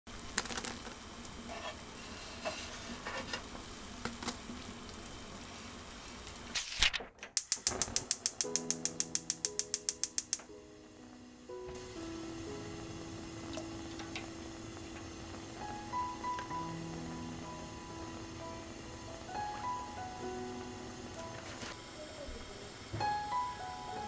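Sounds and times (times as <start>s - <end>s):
soup boiling in a pot: 0.1s - 6.6s, 7.6s - 24.0s
fast even ticking: 7.4s - 10.5s
sustained music notes: 7.8s - 24.0s.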